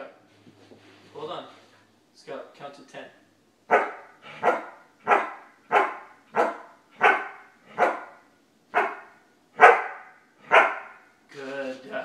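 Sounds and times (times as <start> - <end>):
dog barking: 3.7 - 11.1.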